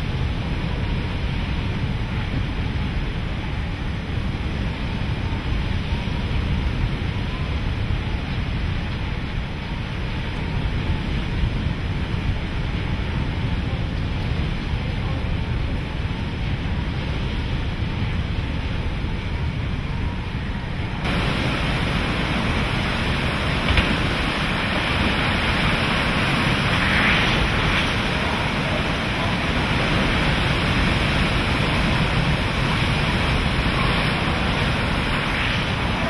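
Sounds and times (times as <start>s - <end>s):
strong wind blowing: 0.0s - 36.0s
wind rumble on microphone: 0.0s - 36.0s
churning water: 21.0s - 36.0s.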